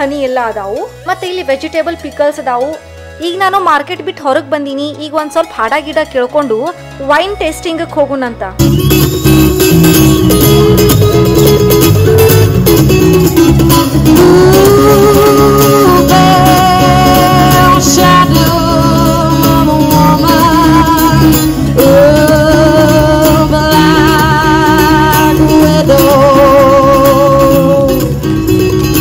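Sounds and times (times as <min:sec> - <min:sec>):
guitar strumming: 0:08.6 - 0:29.0
person singing with vibrato: 0:13.9 - 0:29.0.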